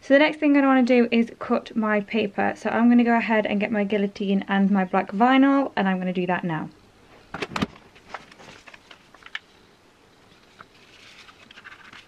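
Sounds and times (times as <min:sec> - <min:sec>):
vinyl sheet rustling: 0:07.1 - 0:09.6, 0:10.2 - 0:12.0.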